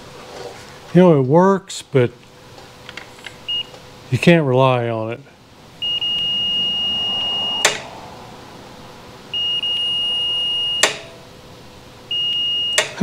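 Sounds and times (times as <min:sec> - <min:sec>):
multimeter high beep: 0:03.4 - 0:03.8, 0:05.8 - 0:07.9, 0:09.3 - 0:11.2, 0:12.1 - 0:13.0.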